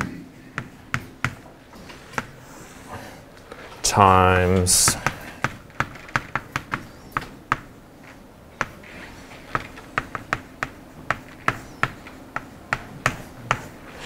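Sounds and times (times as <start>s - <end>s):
chalk tapping on blackboard: 9.5s - 13.7s.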